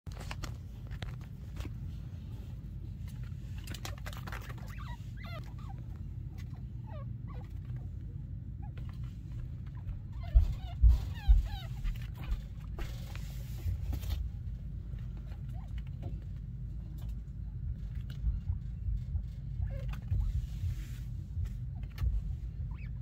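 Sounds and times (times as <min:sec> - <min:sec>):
low rumble: 0:00.2 - 0:23.0
chinchilla squeaking: 0:03.6 - 0:13.2, 0:15.2 - 0:16.2, 0:19.5 - 0:20.4, 0:21.6 - 0:23.0.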